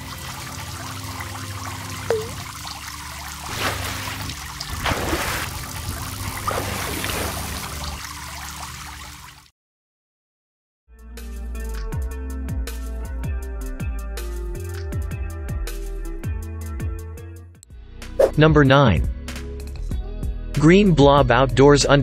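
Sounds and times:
water trickling and pouring: 0.0 - 9.5
water splashes: 2.0 - 9.4.

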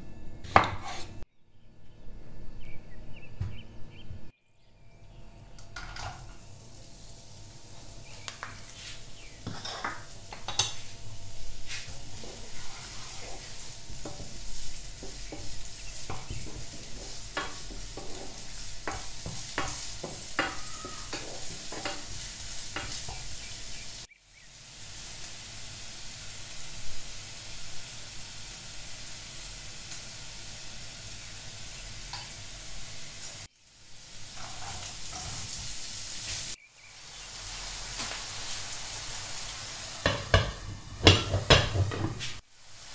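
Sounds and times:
garlic sizzling in hot oil: 5.8 - 42.9
spatula scraping a pan: 8.7 - 10.9, 11.7 - 24.0, 34.2 - 36.4.

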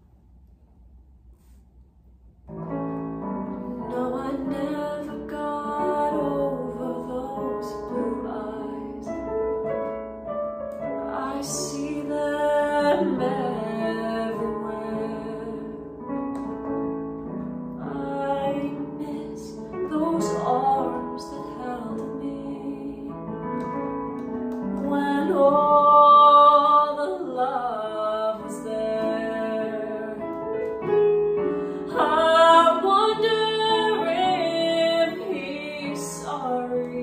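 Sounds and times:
keyboard piano chords: 2.4 - 37.0
woman singing a slow ballad: 3.8 - 9.1, 11.0 - 16.0, 17.8 - 23.8, 24.8 - 37.0.

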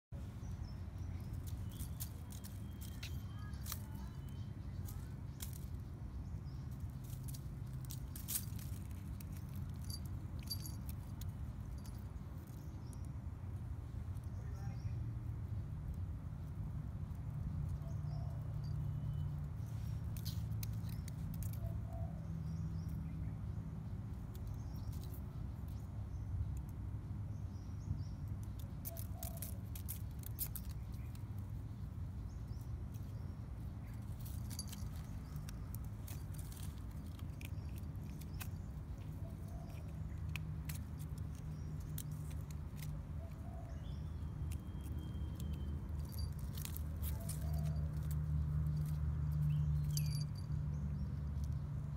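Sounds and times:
small bell jingling: 7.0 - 12.5, 33.8 - 38.6, 44.9 - 51.0.

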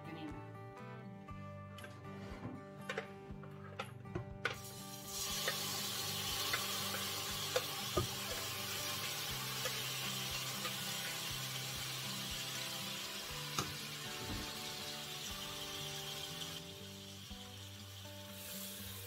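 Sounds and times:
meat sizzling in frying pan: 4.6 - 19.0.

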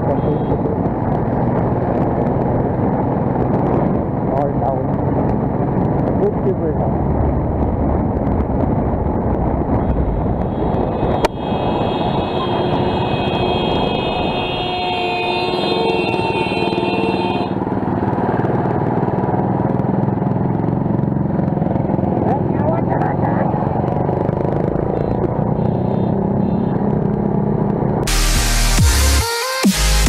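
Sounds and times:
motorcycle engine rumble: 0.0 - 28.1
wind noise: 0.5 - 14.8.

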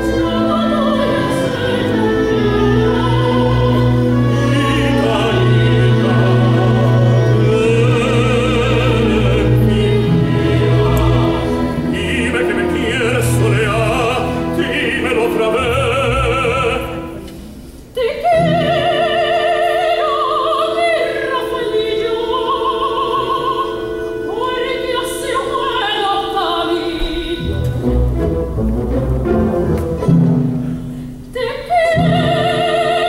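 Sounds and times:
operatic soprano singing: 0.0 - 17.2, 17.8 - 28.0, 31.2 - 33.0
symphony orchestra: 0.0 - 33.0
tenor singing: 0.0 - 33.0.

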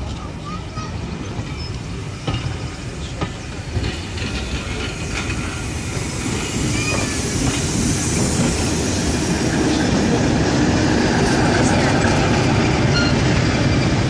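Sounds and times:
train rumble: 0.0 - 14.0
train wheels clicking over rail joints: 0.0 - 14.0
hissing noise: 3.2 - 12.7.

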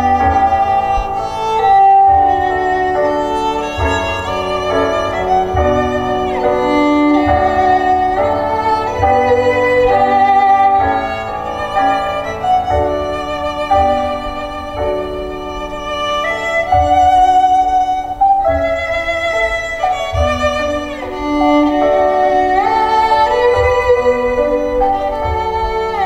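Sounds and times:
lower accompaniment: 0.0 - 26.0
violin melody: 0.0 - 26.0.

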